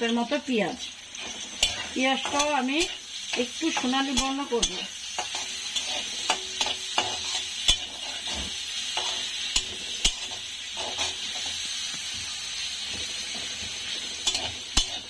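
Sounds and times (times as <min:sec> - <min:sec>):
metal spatula scraping pan: 0:00.0 - 0:15.0
onions sizzling in hot oil: 0:00.0 - 0:15.0.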